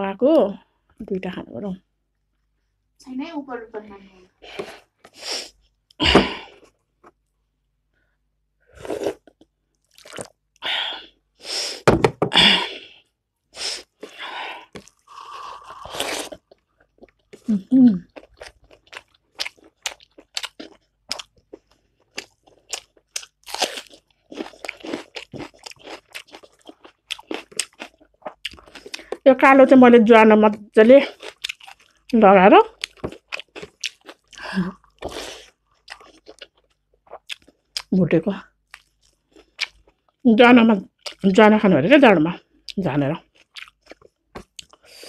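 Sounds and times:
person crunching and chewing: 8.7s - 10.4s, 13.6s - 29.2s, 31.1s - 32.1s, 32.7s - 37.9s, 38.6s - 40.2s, 42.6s - 45.0s.

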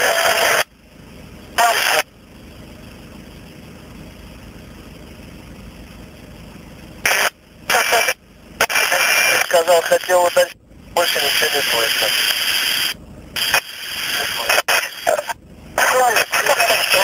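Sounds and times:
bursts of scratchy radio static: 0.0s - 0.7s, 1.6s - 2.1s, 7.1s - 17.0s
steady low hiss: 0.0s - 17.0s.

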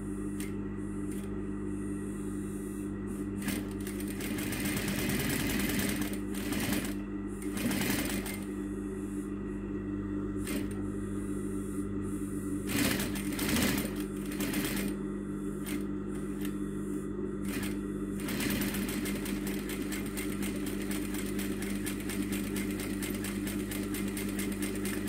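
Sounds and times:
sewing machine stitching: 3.4s - 8.4s, 12.7s - 14.9s, 17.5s - 25.0s.

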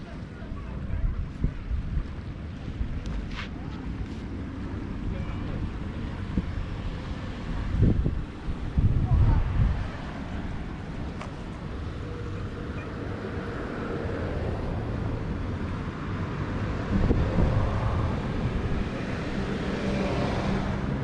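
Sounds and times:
wind on microphone: 0.5s - 21.0s
car traffic passing: 2.2s - 21.0s.

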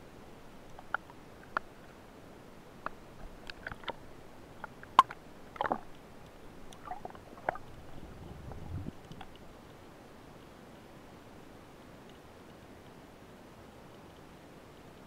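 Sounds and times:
muffled underwater clicks and knocks: 2.8s - 4.0s, 4.6s - 7.8s, 9.0s - 9.4s
low rumble: 7.2s - 9.1s.

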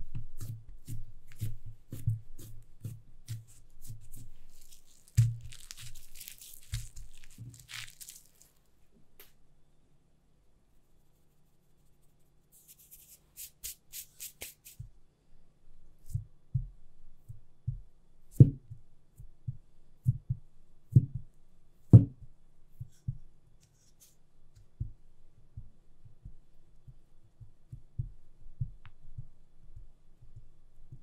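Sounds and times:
rolling pin thudding on dough: 0.1s - 7.8s.

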